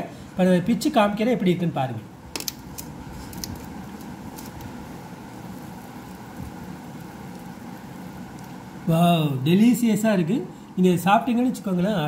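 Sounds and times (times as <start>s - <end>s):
fan humming: 0.0s - 12.0s
faint clicks and crackles: 2.3s - 8.7s.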